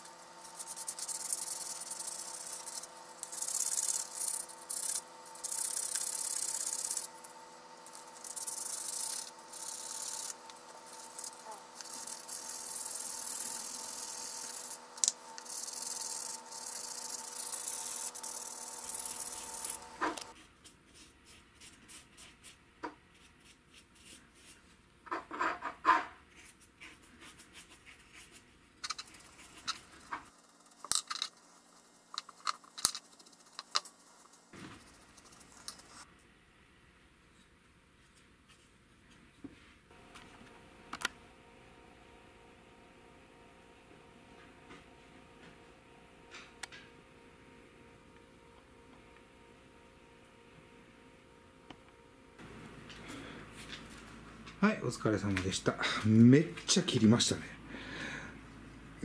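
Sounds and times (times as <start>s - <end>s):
sandpaper rubbing on wood: 0.0s - 7.2s, 8.0s - 14.8s, 15.4s - 20.2s
background hum: 0.0s - 59.0s.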